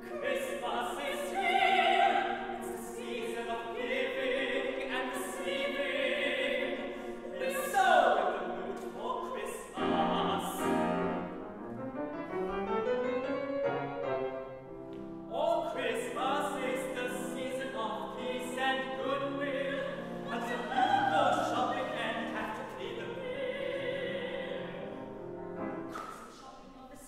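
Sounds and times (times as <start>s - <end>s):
operatic voice singing with vibrato: 0.0s - 11.3s, 15.3s - 25.1s
grand piano accompaniment: 0.0s - 26.7s.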